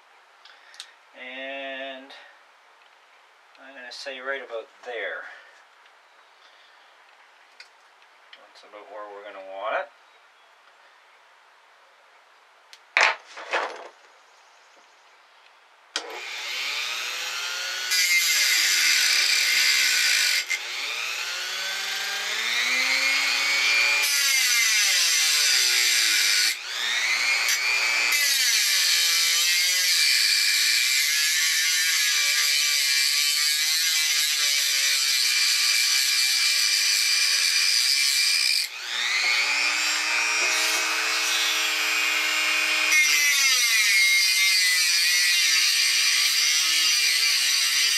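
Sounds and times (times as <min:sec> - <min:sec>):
rotary tool cutting metal: 0:16.0 - 0:47.9.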